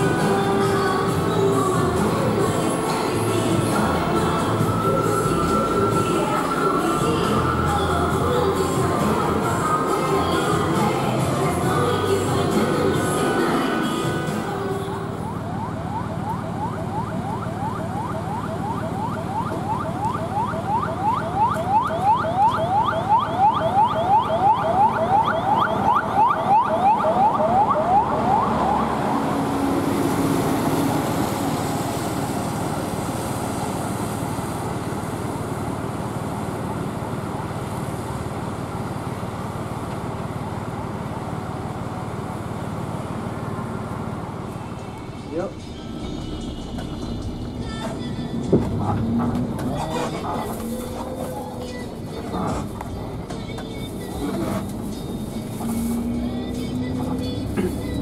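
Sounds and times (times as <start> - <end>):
engine rumble: 0.0 - 24.1, 27.2 - 58.0
vehicle siren sweeping: 3.5 - 10.0, 12.6 - 34.2, 48.8 - 52.7.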